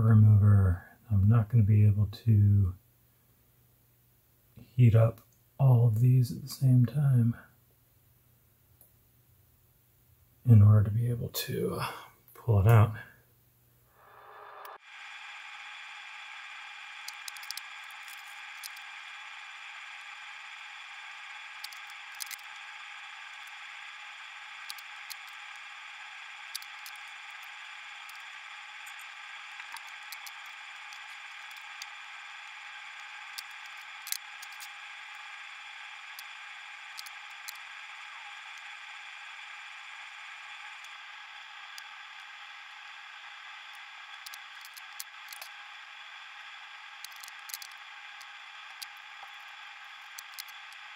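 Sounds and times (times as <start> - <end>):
steady hum with faint tones: 0.0 - 50.9
soldering iron clicking on pins: 50.1 - 50.7.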